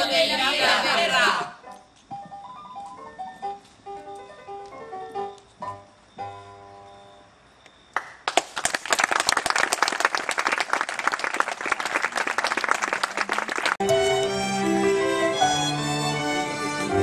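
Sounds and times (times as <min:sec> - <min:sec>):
audience applause: 0:08.0 - 0:13.8
string music: 0:13.8 - 0:17.0.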